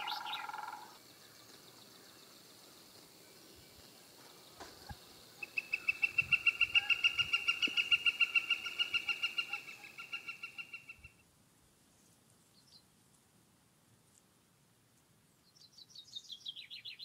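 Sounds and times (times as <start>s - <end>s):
woodpecker rapid wick call: 0.0s - 1.0s, 4.7s - 11.2s.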